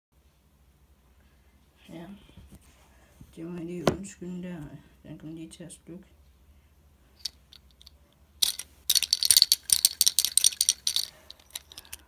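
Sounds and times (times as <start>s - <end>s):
fidget spinner rattling and clicking: 7.2s - 12.0s.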